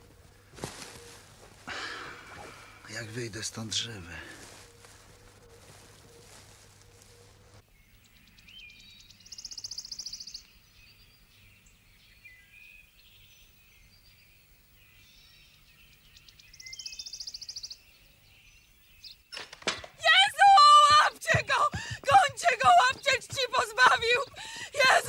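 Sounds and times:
birds singing: 0:07.0 - 0:19.4, 0:20.3 - 0:25.0.

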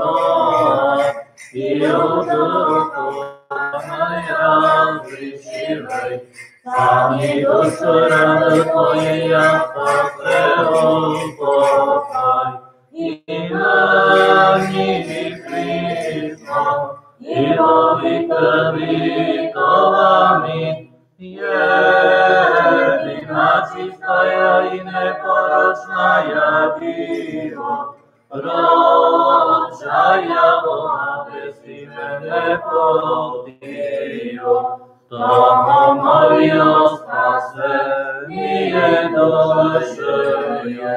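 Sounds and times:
unaccompanied liturgical chant: 0:00.0 - 0:40.9.

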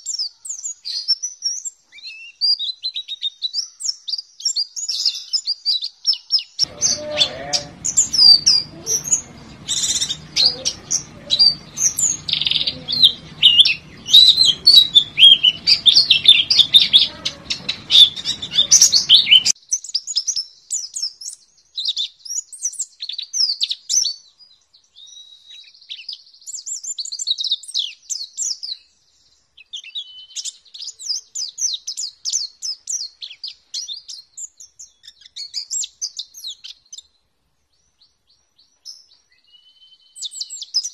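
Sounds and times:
bird twittering song: 0:06.6 - 0:19.6
background hiss and hum: 0:06.7 - 0:19.5.

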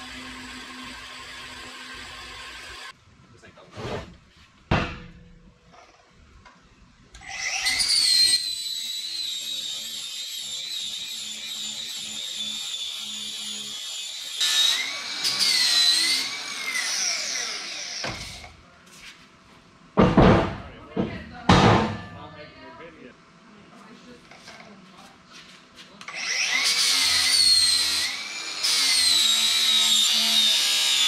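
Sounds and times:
angle grinder whining on metal: 0:00.0 - 0:03.0, 0:07.2 - 0:18.5, 0:26.1 - 0:31.0.

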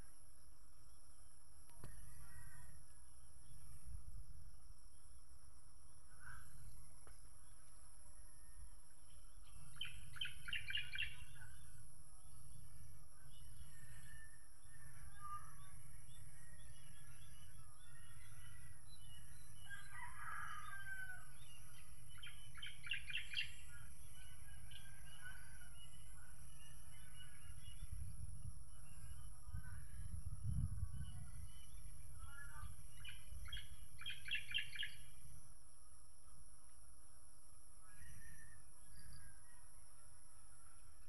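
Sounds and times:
rooster crowing: 0:19.6 - 0:21.6
wind rumble on microphone: 0:23.6 - 0:34.6.

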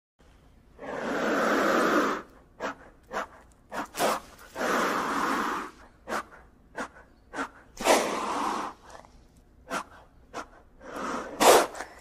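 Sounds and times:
lizard hissing: 0:00.8 - 0:02.8, 0:03.8 - 0:09.0, 0:09.7 - 0:12.0.

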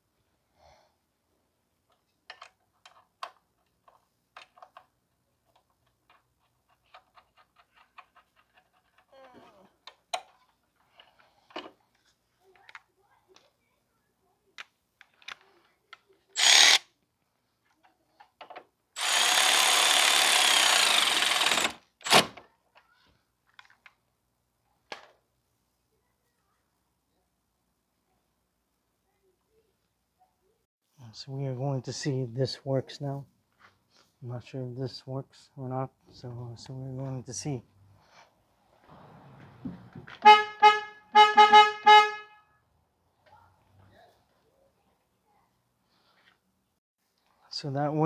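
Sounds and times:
small parts clicking and tapping: 0:01.8 - 0:13.6
power tool running: 0:16.4 - 0:16.8, 0:19.0 - 0:22.3.

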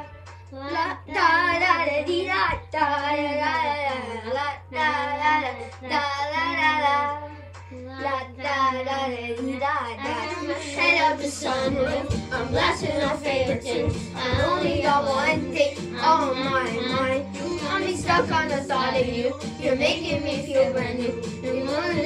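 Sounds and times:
children singing: 0:10.0 - 0:22.0.

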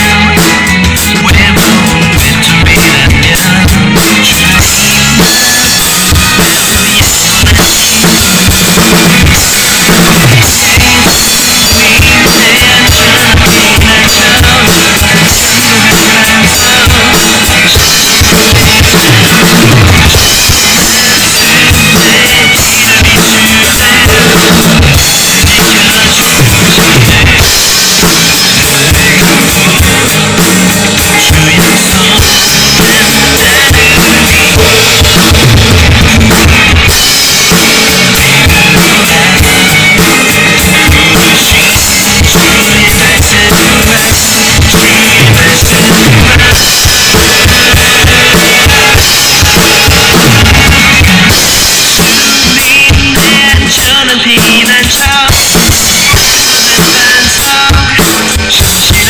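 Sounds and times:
bass drum: 0:00.0 - 0:59.0
snare drum: 0:04.0 - 0:59.0
cymbals: 0:04.1 - 0:53.9.

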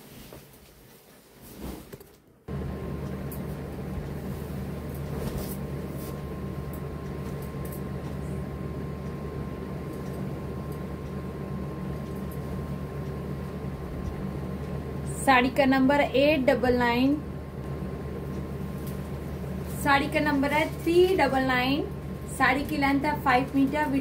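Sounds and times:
fabric rustling: 0:00.0 - 0:02.2, 0:04.2 - 0:06.2
low hum: 0:02.5 - 0:24.0.

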